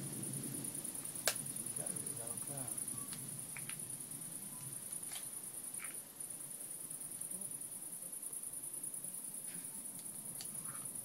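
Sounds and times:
crickets trilling: 0:00.0 - 0:11.0
faint clicks: 0:09.5 - 0:10.8.

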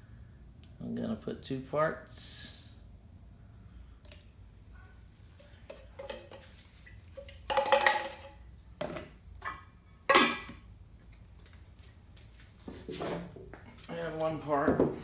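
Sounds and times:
paint cans knocking: 0:05.6 - 0:06.5, 0:07.4 - 0:10.6.

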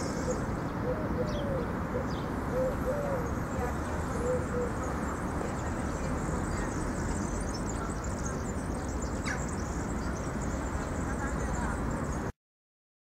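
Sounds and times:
pigeon cooing: 0:00.0 - 0:03.4, 0:04.1 - 0:04.8
small birds chirping: 0:00.0 - 0:12.3.

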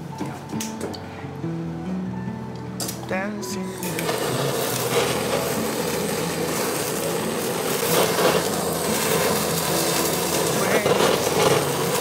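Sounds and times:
blowtorch hissing: 0:02.8 - 0:12.0.

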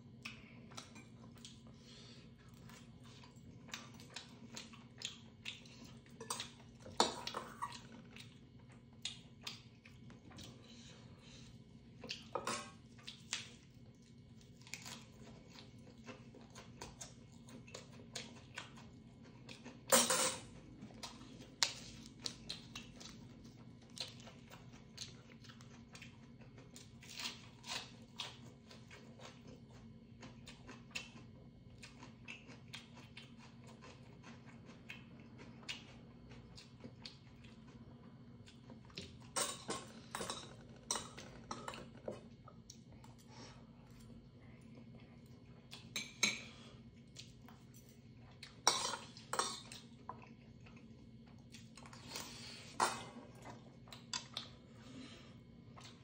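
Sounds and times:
faint low hum: 0:00.0 - 0:56.0
chewing: 0:00.1 - 0:19.9, 0:20.5 - 0:56.0.

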